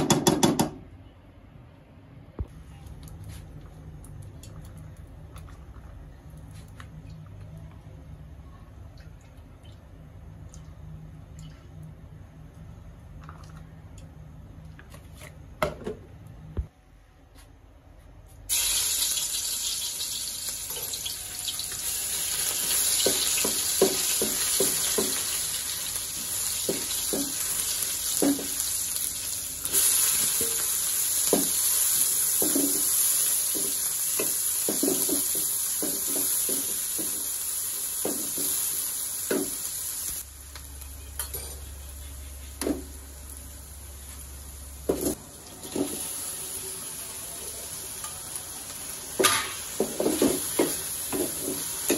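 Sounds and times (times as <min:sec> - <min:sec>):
ghee sizzling in a pan: 0:18.5 - 0:51.9.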